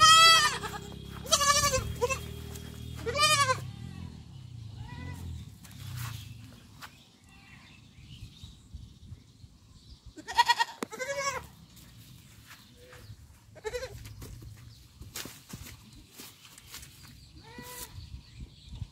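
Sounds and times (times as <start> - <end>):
young goat bleating: 0.0 - 5.5, 7.2 - 7.8, 10.2 - 11.5, 12.8 - 14.1, 17.4 - 18.1.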